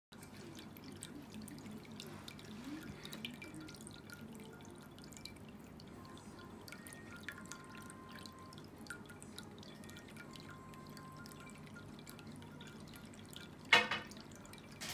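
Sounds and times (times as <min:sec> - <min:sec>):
water trickling and dripping: 0:00.1 - 0:14.9.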